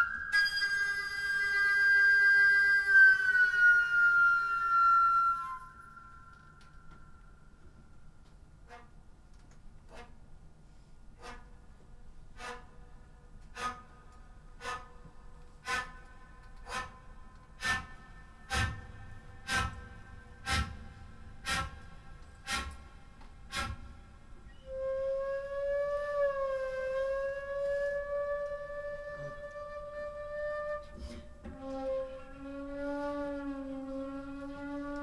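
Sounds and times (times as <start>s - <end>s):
flute sharp pitched strikes: 0.0s - 7.4s, 15.6s - 21.8s
flute long held note: 0.0s - 7.5s, 24.5s - 35.0s.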